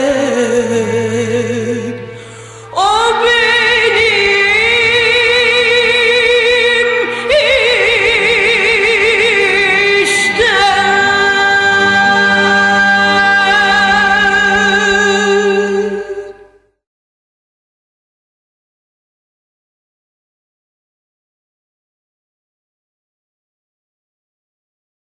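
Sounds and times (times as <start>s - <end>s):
woman singing with vibrato: 0.0s - 16.6s
instrumental accompaniment: 0.0s - 16.8s.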